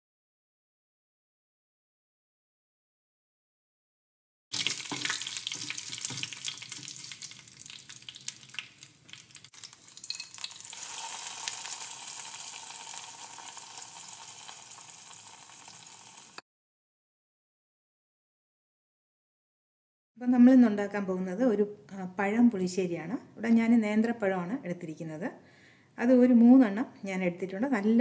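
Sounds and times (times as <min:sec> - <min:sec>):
chillies crackling in hot oil: 0:04.5 - 0:16.4
oil sizzling: 0:04.5 - 0:16.4.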